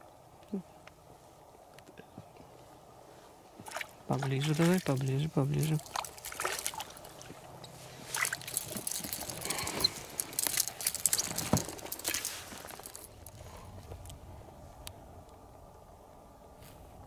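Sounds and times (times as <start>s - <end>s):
water splashing against boat: 3.6s - 13.2s.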